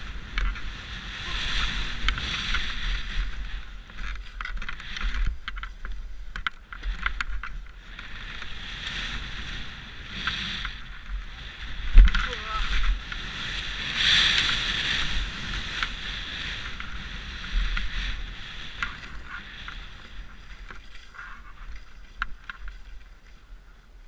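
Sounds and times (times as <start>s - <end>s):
skis hissing through snow: 0.0s - 4.4s, 7.8s - 22.2s
wind rushing over camera: 0.0s - 24.0s.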